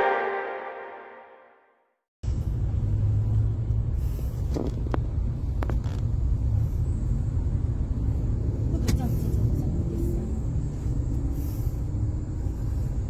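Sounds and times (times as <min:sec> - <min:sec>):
intro music: 0:00.0 - 0:01.8.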